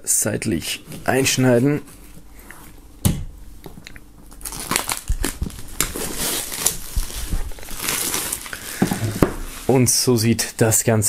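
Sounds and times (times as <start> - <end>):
plastic film crinkling: 4.3 - 10.0.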